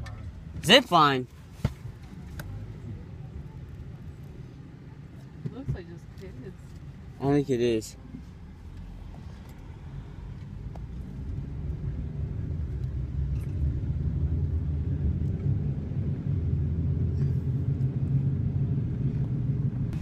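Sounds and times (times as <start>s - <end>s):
car engine and road noise: 0.0s - 20.0s.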